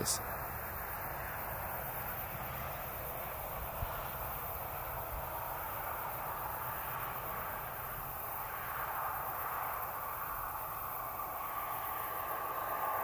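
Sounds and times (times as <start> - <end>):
distant road traffic hiss: 0.0 - 13.0.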